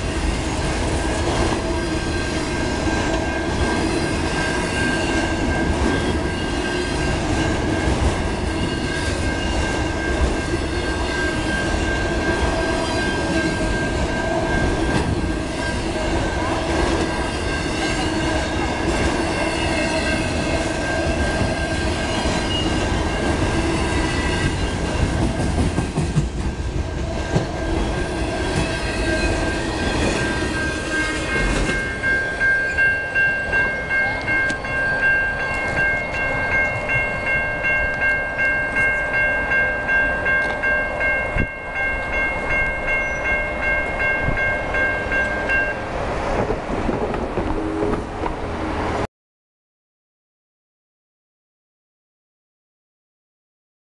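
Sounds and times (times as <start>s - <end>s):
railroad crossing bell ringing: 0.0s - 46.0s
freight train rumbling past: 0.0s - 49.1s.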